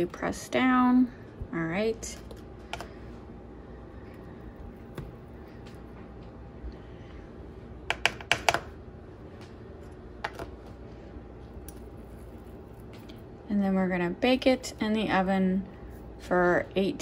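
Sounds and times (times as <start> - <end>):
low room hum: 0.0 - 17.0
fork tapping on plastic cup: 7.9 - 8.6.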